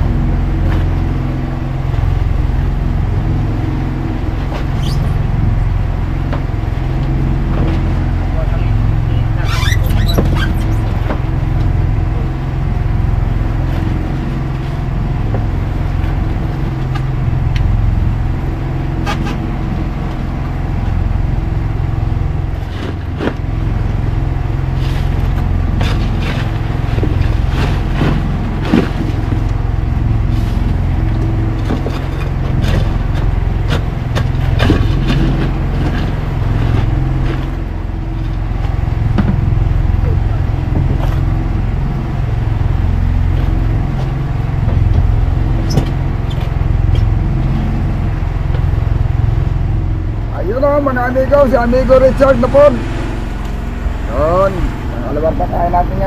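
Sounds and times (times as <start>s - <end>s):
boat engine running: 0.0s - 56.0s
knocks and clatters of fish and ice: 24.8s - 29.6s, 30.4s - 39.7s, 40.6s - 41.4s.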